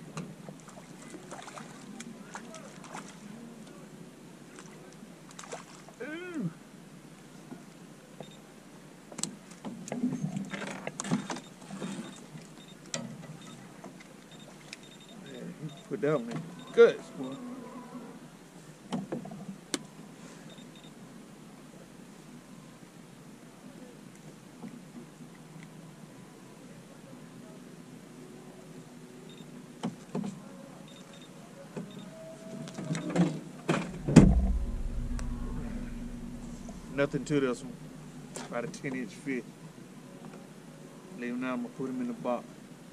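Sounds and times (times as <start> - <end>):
knocks and clicks in boat: 9.1 - 12.2, 32.8 - 34.6
loud thump: 33.7 - 38.3
low rumble: 33.8 - 38.6.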